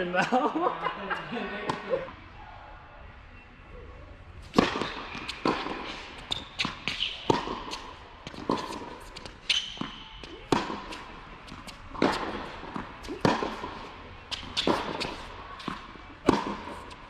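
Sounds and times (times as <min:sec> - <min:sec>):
tennis ball bouncing: 0:01.7 - 0:02.0, 0:04.5 - 0:17.0
racquet striking tennis ball: 0:04.5 - 0:17.0
sneakers squeaking on court: 0:04.6 - 0:16.9.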